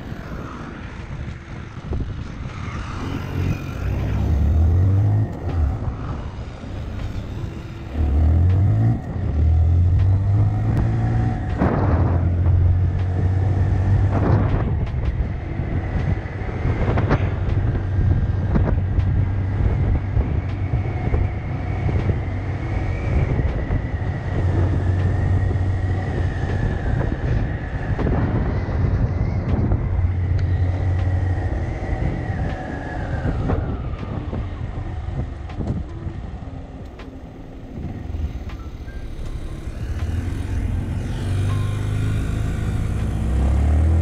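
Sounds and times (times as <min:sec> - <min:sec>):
small motorbike engine running: 0:37.5 - 0:44.0.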